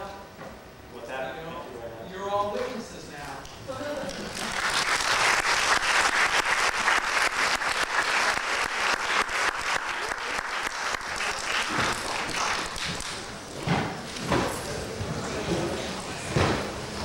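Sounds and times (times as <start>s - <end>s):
audience applauding: 4.1s - 13.3s.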